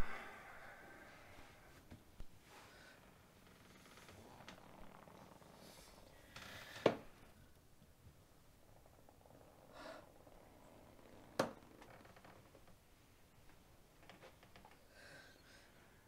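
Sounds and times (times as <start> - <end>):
soft breath: 0.0 - 3.2, 9.6 - 10.4, 14.8 - 16.0.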